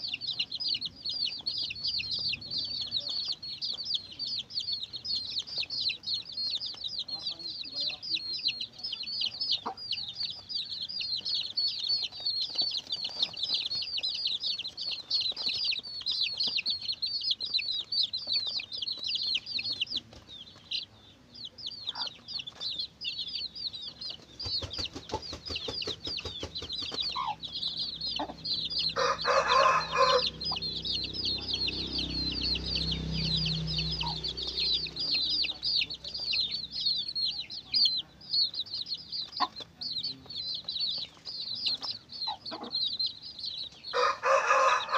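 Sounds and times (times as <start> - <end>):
chicks peeping: 0.0 - 44.9
hen clucking: 0.0 - 44.9
loud full hen call: 27.1 - 35.5, 43.9 - 44.9.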